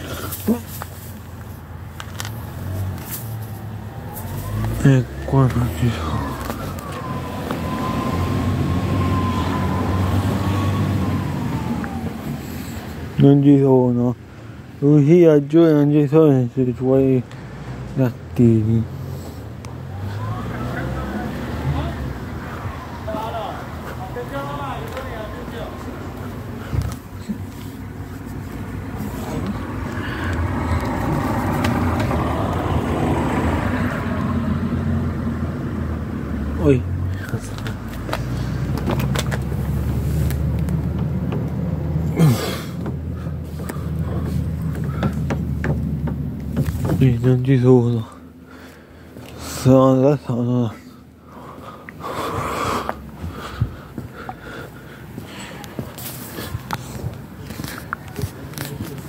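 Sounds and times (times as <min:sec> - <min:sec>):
road noise: 0:00.0 - 0:59.0
vehicle engine rumble: 0:00.0 - 0:59.0
car engine running: 0:36.7 - 0:47.4.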